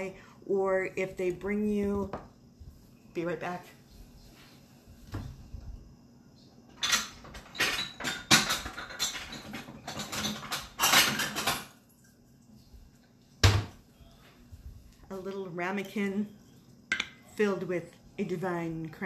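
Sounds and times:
dishware clattering and clinking: 6.7 - 11.8, 16.9 - 17.3.

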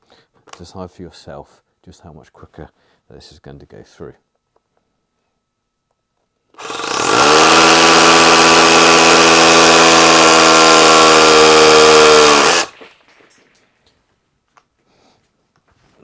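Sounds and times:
hammer drill boring into concrete: 6.6 - 12.8.

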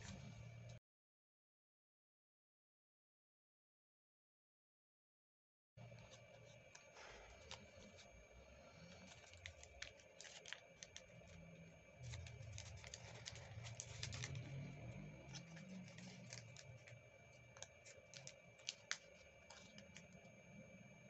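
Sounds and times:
low rumble of hand handling: 5.8 - 20.5
paper crinkling and clicking: 5.9 - 8.1, 8.7 - 20.3.

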